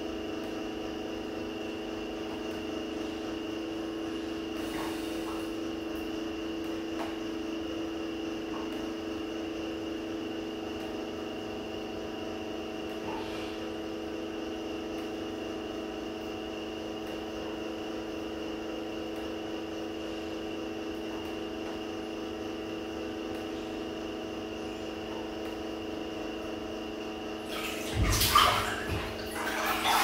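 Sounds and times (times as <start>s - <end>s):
bath water sloshing: 27.4s - 30.0s.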